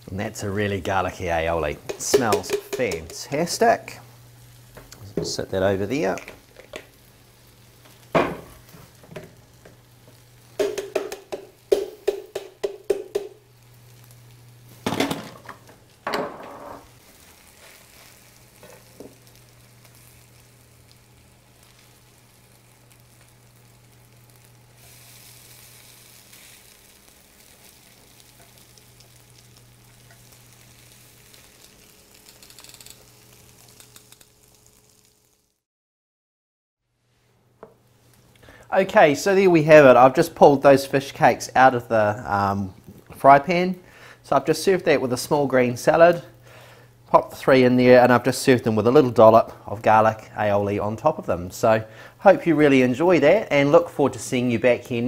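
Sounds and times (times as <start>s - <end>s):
faint frying sizzle: 0.0s - 35.6s, 37.0s - 55.0s
utensils knocking: 1.8s - 3.3s, 10.6s - 13.4s.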